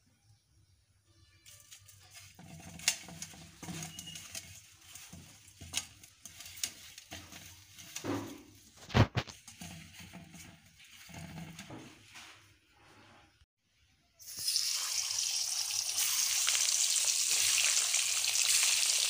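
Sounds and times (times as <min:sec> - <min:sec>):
eggs rubbing in a metal bowl: 0:01.4 - 0:13.4.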